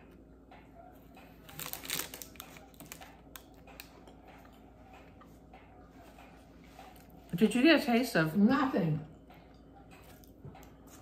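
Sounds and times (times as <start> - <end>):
snack packaging crinkling: 1.4 - 4.0.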